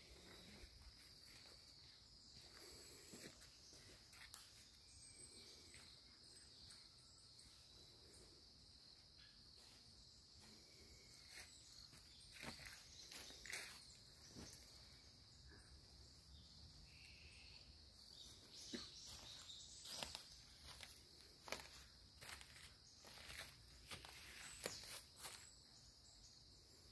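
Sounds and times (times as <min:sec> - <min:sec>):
high-pitched insect chorus: 0:00.0 - 0:26.9
footsteps on dry leaves: 0:19.1 - 0:25.5.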